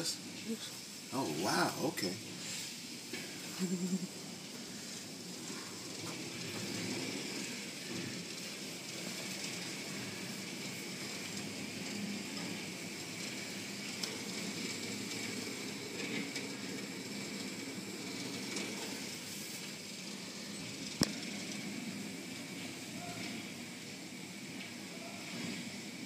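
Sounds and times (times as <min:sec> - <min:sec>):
faint high machine whine: 0:00.0 - 0:26.0
car wash brushes sweeping: 0:02.3 - 0:03.6, 0:04.6 - 0:23.7.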